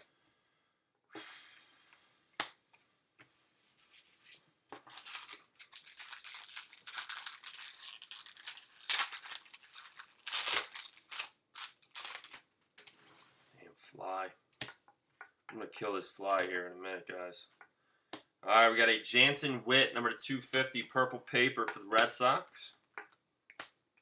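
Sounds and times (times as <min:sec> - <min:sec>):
cards rustling: 0:03.8 - 0:13.4
foil wrapper crinkling and tearing: 0:04.9 - 0:12.5.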